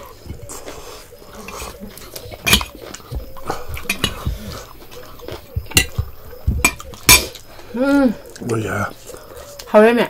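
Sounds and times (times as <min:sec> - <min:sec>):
metal spoon clinking on plates: 0:02.4 - 0:02.8, 0:03.7 - 0:04.4, 0:05.0 - 0:07.4.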